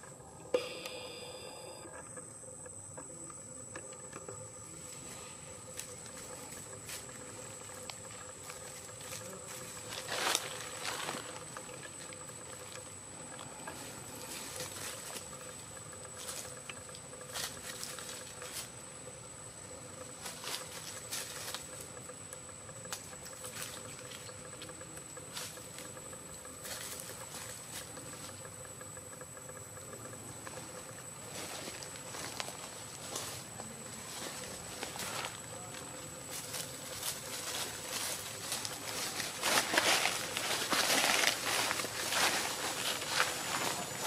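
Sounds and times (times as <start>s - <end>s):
faint high whine: 0.0s - 44.0s
dry leaves rustling and crackling: 5.8s - 12.1s, 31.3s - 44.0s.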